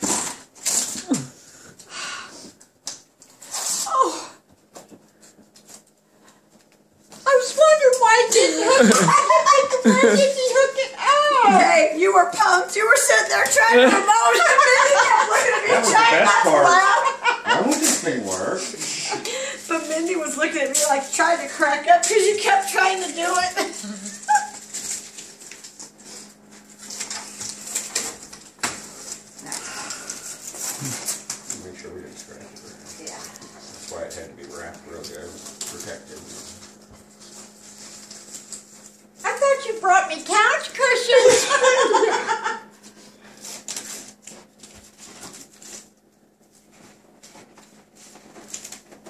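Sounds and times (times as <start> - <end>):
faint steady hum: 0.0 - 49.0
cardboard rustling and scraping: 30.2 - 39.6, 42.8 - 49.0.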